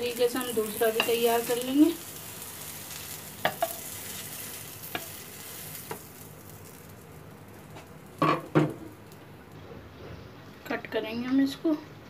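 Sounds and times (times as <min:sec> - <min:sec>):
butter sizzling in frying pan: 0:00.0 - 0:09.6.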